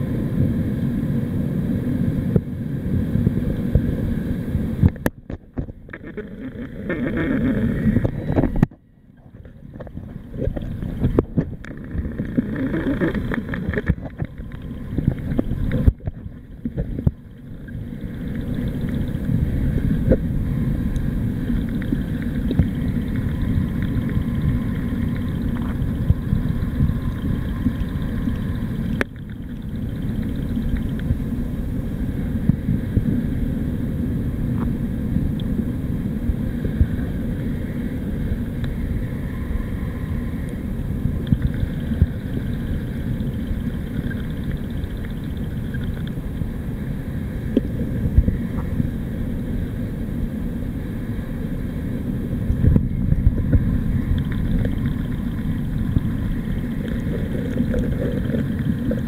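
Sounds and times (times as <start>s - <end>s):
underwater rumble of moving water: 0.0s - 59.0s
faint underwater clicks: 4.8s - 31.2s, 34.5s - 35.6s, 38.4s - 48.9s, 52.5s - 59.0s.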